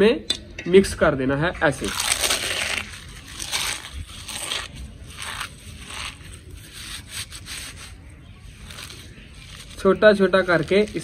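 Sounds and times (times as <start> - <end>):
eggshells crunching: 1.7 - 6.4.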